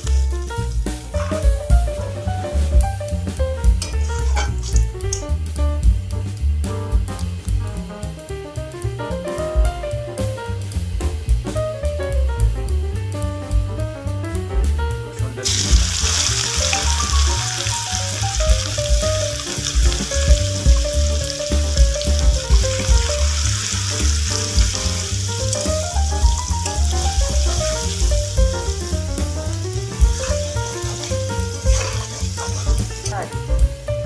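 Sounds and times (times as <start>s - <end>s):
onions sizzling in hot oil: 0.0s - 1.5s, 3.2s - 5.9s, 15.4s - 33.3s
spatula stirring in wok: 0.0s - 1.5s, 3.7s - 4.9s, 29.9s - 33.1s
background music with bass line: 0.0s - 34.0s.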